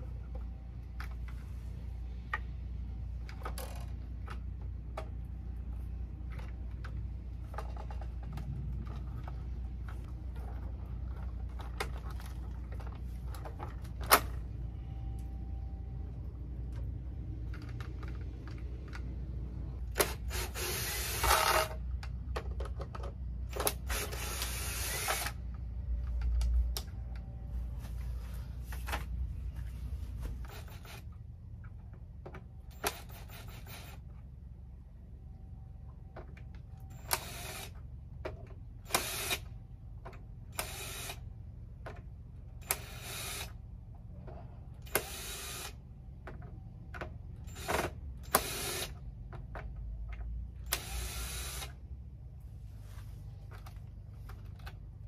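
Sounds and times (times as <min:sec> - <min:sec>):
steady low hum: 0:00.0 - 0:55.0
cordless drill running: 0:20.0 - 0:21.8, 0:23.6 - 0:25.4, 0:37.1 - 0:37.8, 0:38.9 - 0:39.5, 0:40.6 - 0:41.2, 0:42.7 - 0:43.6, 0:44.9 - 0:45.8, 0:47.5 - 0:49.0, 0:50.7 - 0:51.8.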